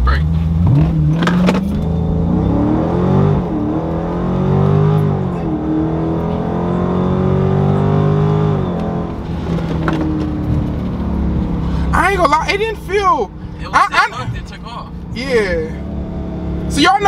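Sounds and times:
car engine at full throttle: 0.0s - 17.0s.

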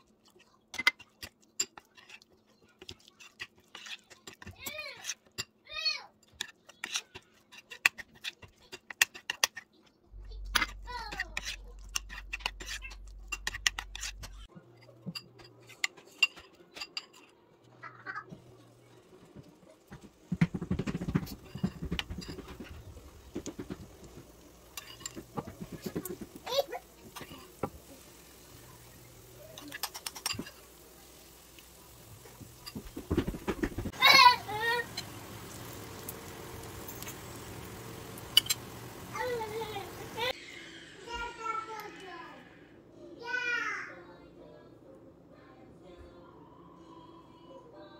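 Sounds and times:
fritters sizzling in oil: 20.4s - 40.4s.

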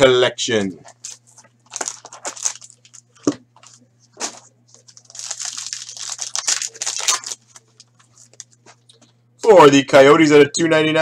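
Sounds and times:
plastic wrapper crinkling: 1.0s - 9.1s.

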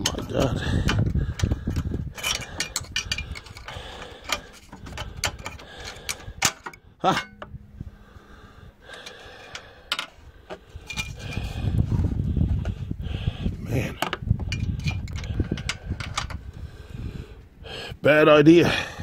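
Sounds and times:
screwdriver clicking on metal: 0.0s - 7.5s.

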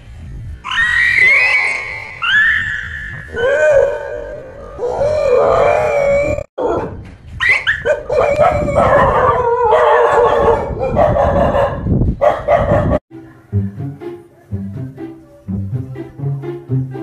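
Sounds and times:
dog howling and whining: 0.7s - 6.9s, 7.8s - 11.4s
dog yelping: 0.7s - 13.0s.

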